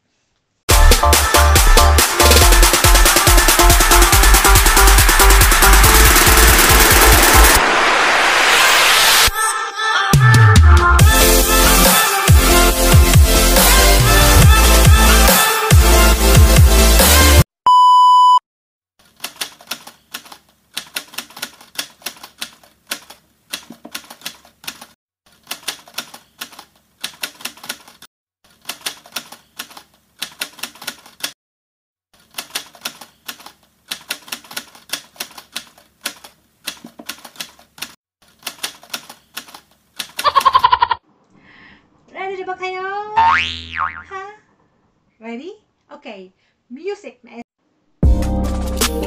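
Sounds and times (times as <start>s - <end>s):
short beep: 17.7s - 18.4s.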